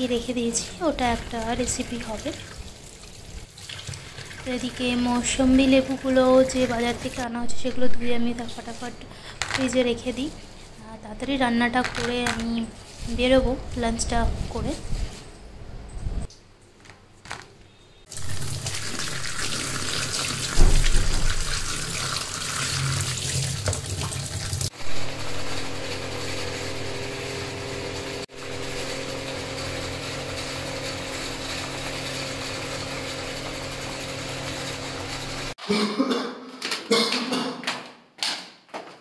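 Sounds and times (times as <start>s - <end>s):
tap running water: 0.9s - 7.3s, 18.1s - 24.7s.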